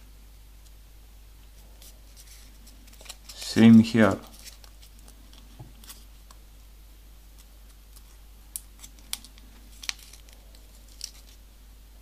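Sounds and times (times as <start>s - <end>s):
paper crackling while folded: 1.6s - 6.4s, 8.8s - 11.4s.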